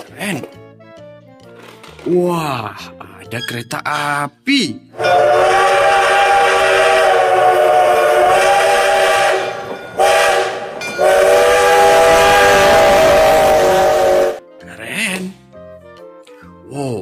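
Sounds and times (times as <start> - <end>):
steam locomotive whistle: 5.0 - 14.4.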